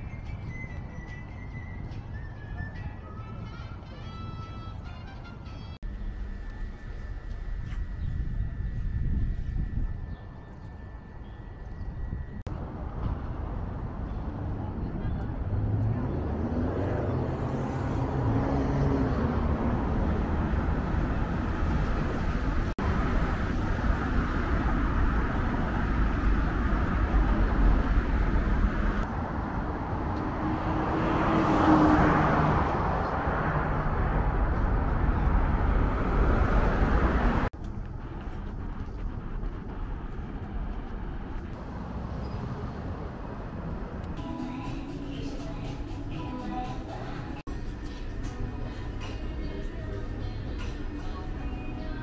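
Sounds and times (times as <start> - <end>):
city traffic rumble: 0.0 - 52.0
vehicle passing: 12.6 - 52.0.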